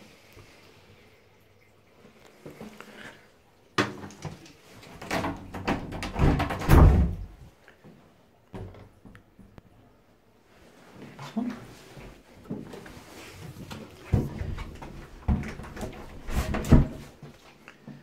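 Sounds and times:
knocks and thumps on wooden door: 0:05.0 - 0:07.4, 0:14.2 - 0:17.1.

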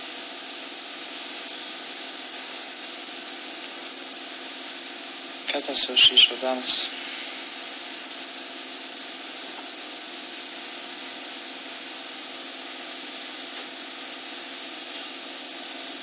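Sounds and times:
background hum and hiss: 0:00.0 - 0:16.0.

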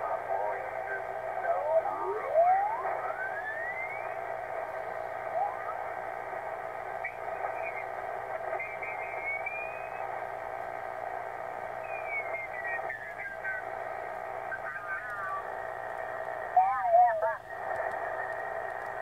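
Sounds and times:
radio static hiss: 0:00.0 - 0:19.0
radio whistling tones: 0:01.4 - 0:04.3, 0:05.0 - 0:05.8, 0:06.9 - 0:10.2, 0:11.6 - 0:15.6.

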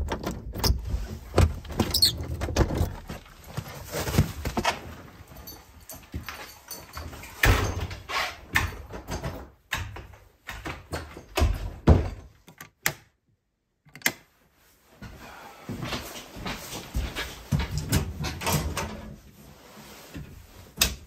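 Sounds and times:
wooden door opening and shutting: 0:00.0 - 0:03.2, 0:07.1 - 0:13.1.

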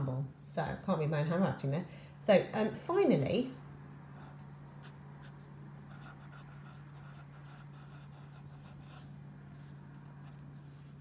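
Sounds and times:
steady low hum: 0:00.0 - 0:11.0
pen scratching on paper: 0:04.2 - 0:11.0.

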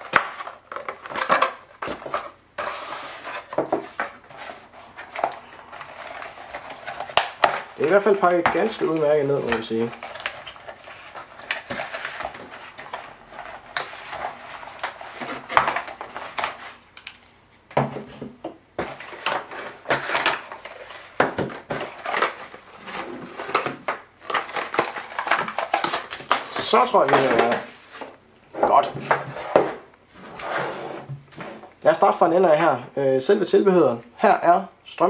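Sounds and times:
cardboard rustling and sliding: 0:00.4 - 0:07.1, 0:18.8 - 0:31.7.

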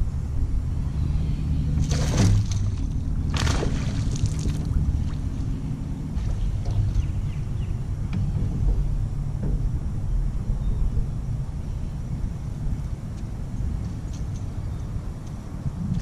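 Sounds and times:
low rumble: 0:00.0 - 0:16.0
fish thrashing and splashing: 0:01.8 - 0:05.4.

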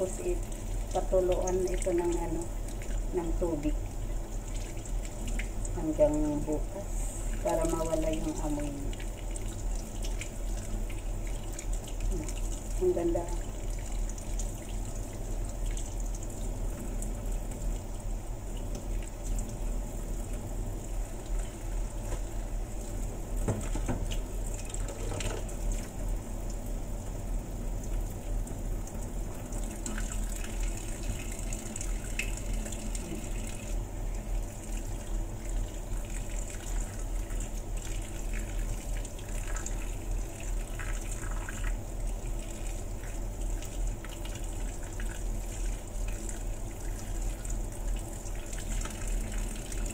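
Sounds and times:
tap running into metal sink: 0:23.1 - 0:24.2, 0:24.8 - 0:25.6.

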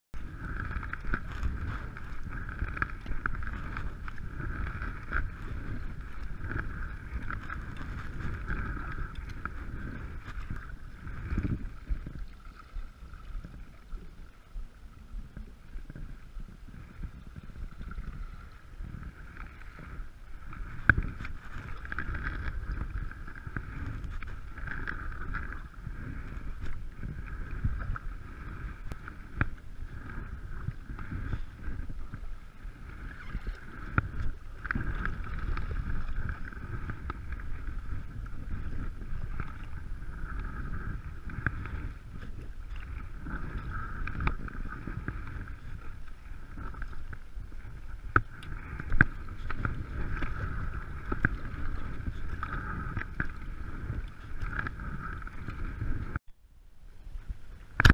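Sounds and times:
kayak paddle strokes in water: 0:00.1 - 0:57.9
wind rumble on microphone: 0:00.1 - 0:57.9.

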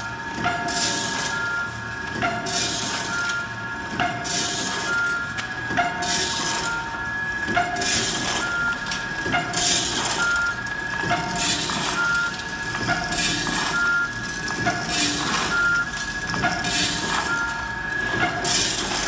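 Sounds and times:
packing machine whine: 0:00.0 - 0:19.0.

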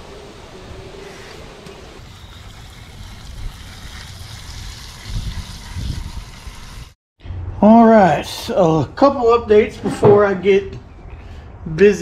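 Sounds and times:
wind rumble on microphone: 0:04.6 - 0:07.6.

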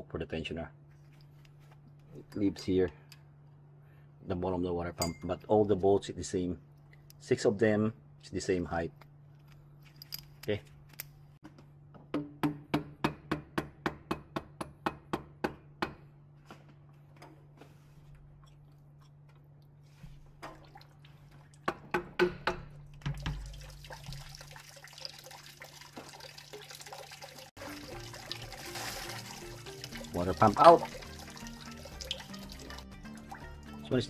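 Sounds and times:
coolant trickling and dripping: 0:19.6 - 0:21.7, 0:22.7 - 0:33.9.

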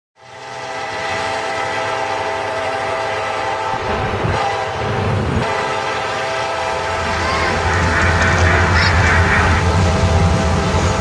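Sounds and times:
small tourist train: 0:00.2 - 0:11.0.

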